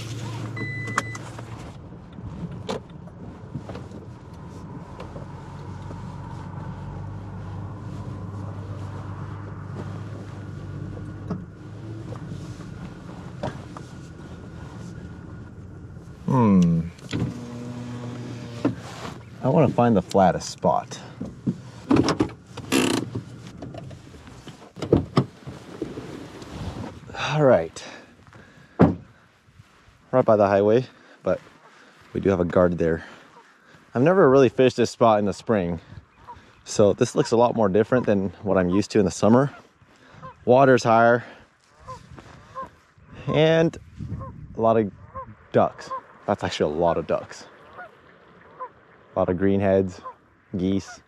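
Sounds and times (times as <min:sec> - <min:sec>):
engine and road hum: 0:00.0 - 0:51.0
high electronic beep: 0:00.6 - 0:01.2
clicks and knocks in truck cab: 0:21.4 - 0:23.9.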